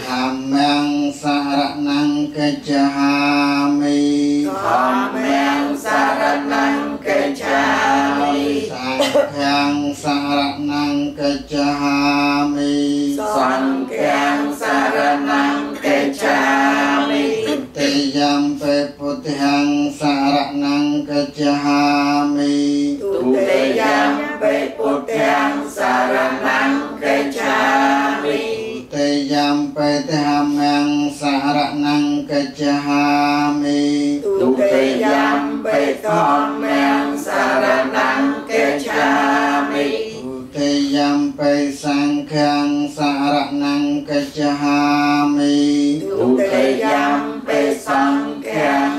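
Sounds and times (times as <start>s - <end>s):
congregation chanting in unison: 0.0s - 48.9s.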